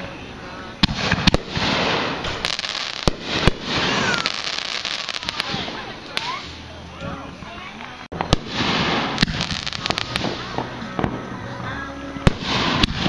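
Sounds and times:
firework crackling: 0:00.0 - 0:13.0
firework shells bursting: 0:00.8 - 0:06.6
firework bangs: 0:00.8 - 0:06.7, 0:08.1 - 0:11.3, 0:12.2 - 0:13.0.

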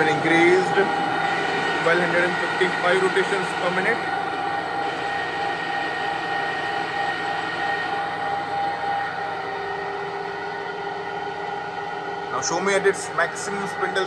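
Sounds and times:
lathe running: 0:00.0 - 0:14.0.

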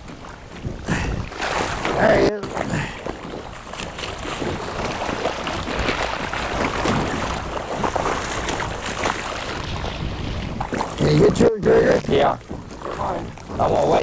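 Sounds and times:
water noise: 0:00.0 - 0:14.0
wind buffeting microphone: 0:00.0 - 0:14.0.

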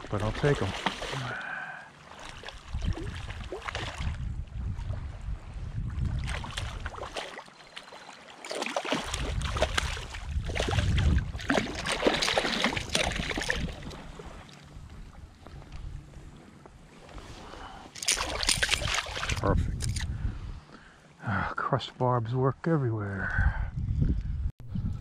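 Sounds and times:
fish thrashing in water: 0:00.6 - 0:01.5, 0:06.2 - 0:14.3, 0:17.9 - 0:20.0
wind on microphone: 0:02.6 - 0:07.0, 0:09.0 - 0:16.4, 0:17.1 - 0:20.7, 0:23.2 - 0:25.0.

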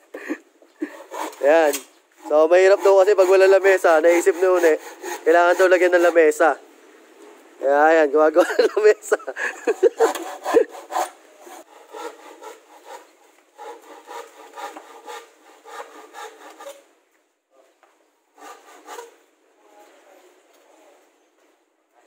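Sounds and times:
hand saw cutting plywood: 0:00.8 - 0:06.6, 0:09.6 - 0:16.9, 0:18.3 - 0:19.2.

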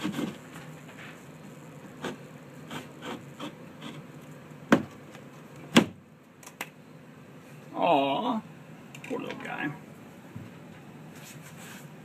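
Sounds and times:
knife scraping drywall: 0:00.0 - 0:00.4, 0:02.0 - 0:04.0.

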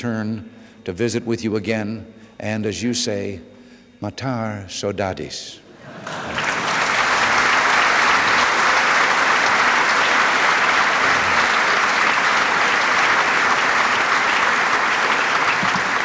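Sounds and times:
large audience clapping: 0:06.0 - 0:16.0.

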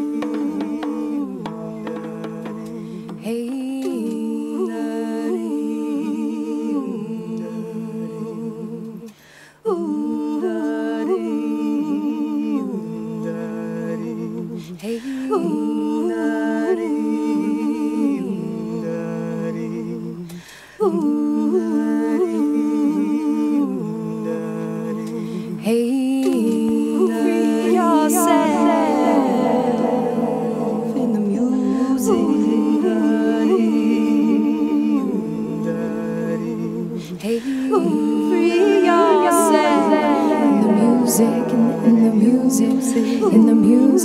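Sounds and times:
women humming and singing: 0:00.0 - 0:13.5, 0:14.1 - 0:44.0.

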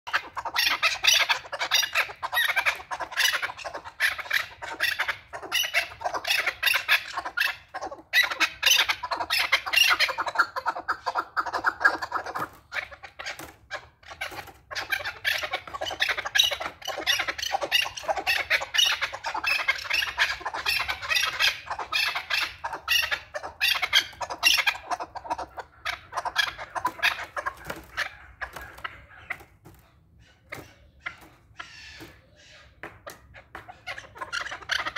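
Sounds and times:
partridge clucking call: 0:00.1 - 0:34.9.

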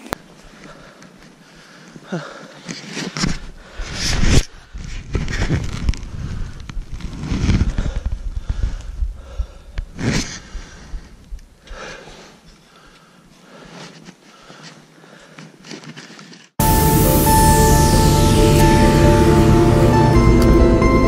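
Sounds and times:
music: 0:16.6 - 0:21.0.

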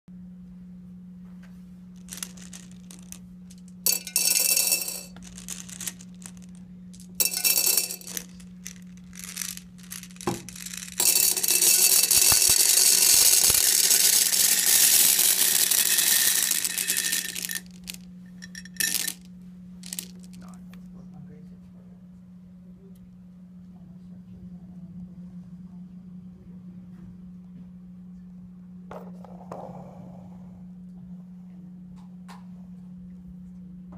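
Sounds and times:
steady low hum: 0:00.1 - 0:33.9
gumballs clattering into glass vase: 0:02.0 - 0:20.4.

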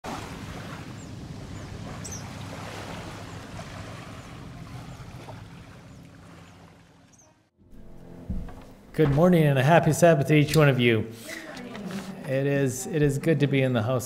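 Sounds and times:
low hum: 0:00.3 - 0:10.0.

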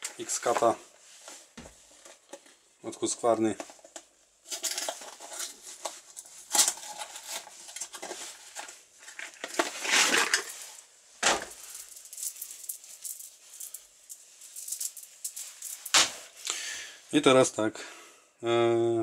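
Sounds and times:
cardboard package rustling: 0:04.5 - 0:14.4.

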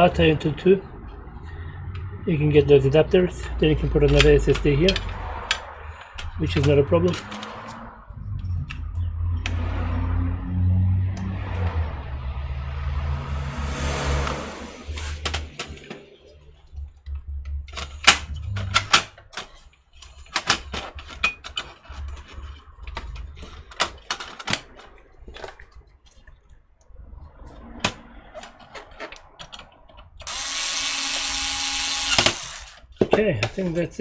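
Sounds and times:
metal clicks and knocks: 0:03.4 - 0:09.6, 0:16.7 - 0:26.6
electric screwdriver running: 0:30.3 - 0:32.8.

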